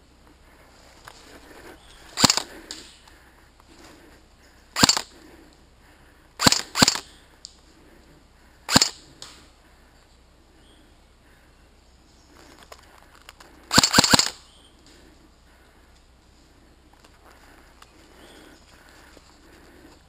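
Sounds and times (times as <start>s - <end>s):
airsoft gun shots: 2.2s - 2.5s, 4.8s - 5.1s, 6.4s - 7.1s, 8.7s - 9.0s, 13.7s - 14.4s.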